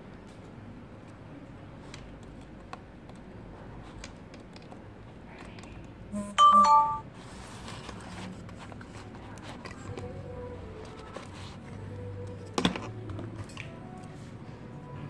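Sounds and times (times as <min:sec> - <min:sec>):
two-tone chime: 0:06.2 - 0:07.1.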